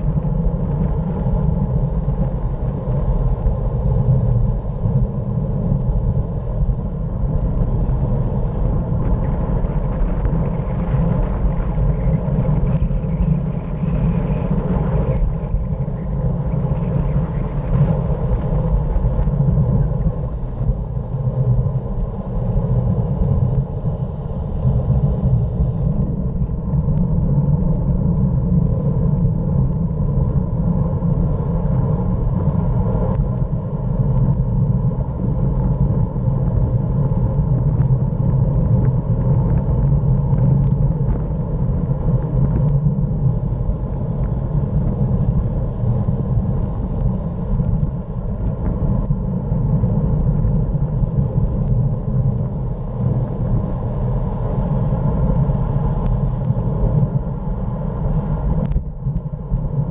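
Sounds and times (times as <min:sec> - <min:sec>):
wind rumbling on microphone: 0:00.0 - 0:59.9
faint clicks: 0:58.1 - 0:59.7.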